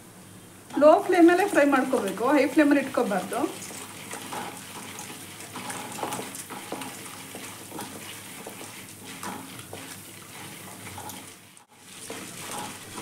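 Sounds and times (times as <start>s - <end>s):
oil sizzling in a pan: 0.1s - 13.0s
spatula stirring and scraping: 0.7s - 13.0s.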